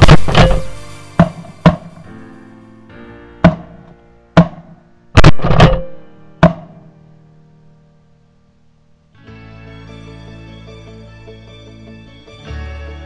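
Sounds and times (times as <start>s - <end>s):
loud bangs: 0.0s - 2.2s, 3.4s - 6.8s
instrumental background music: 0.0s - 8.2s, 9.0s - 13.0s.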